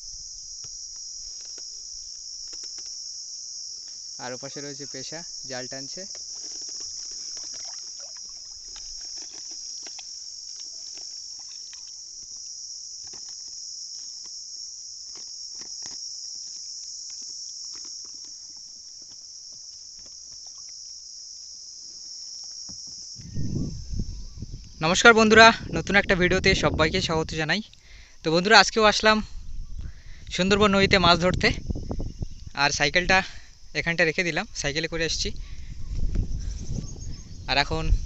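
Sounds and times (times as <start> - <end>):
high-pitched insect drone: 0.0 - 38.0
net ticking and rustling: 1.2 - 3.1, 5.9 - 20.8
loud low rumble: 23.2 - 24.6.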